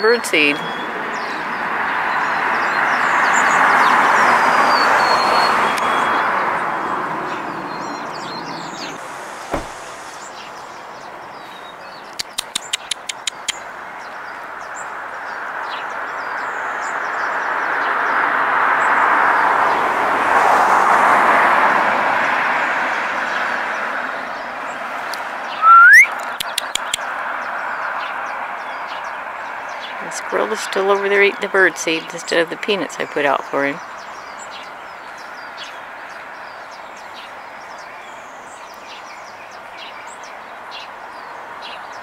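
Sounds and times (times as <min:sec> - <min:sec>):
birds chirping: 0:00.0 - 0:18.2, 0:22.9 - 0:42.0
road traffic hum: 0:00.0 - 0:42.0
sharp bird chips: 0:12.1 - 0:13.7, 0:25.6 - 0:27.2
short rising whistle: 0:25.6 - 0:26.2.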